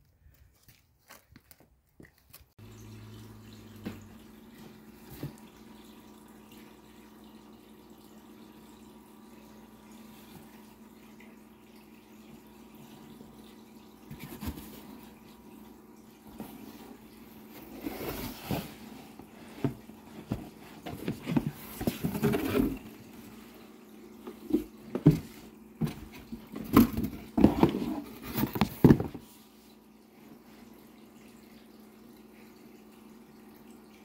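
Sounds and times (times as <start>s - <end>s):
faint steady hum: 2.6s - 34.0s
cardboard scraping and rustling: 14.1s - 15.0s, 16.4s - 23.0s, 24.3s - 29.3s.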